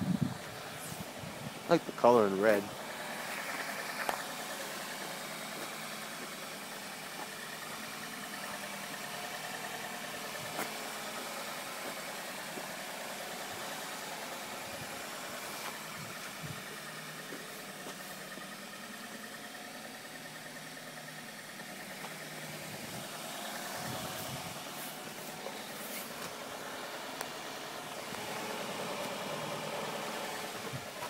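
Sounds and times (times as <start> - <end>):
car engine idling: 0.0 - 31.0.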